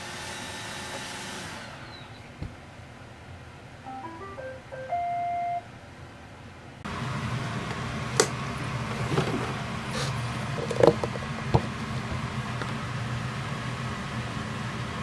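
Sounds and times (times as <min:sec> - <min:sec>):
steady hum: 0:03.7 - 0:15.0
robot vacuum electronic tune: 0:03.9 - 0:05.6.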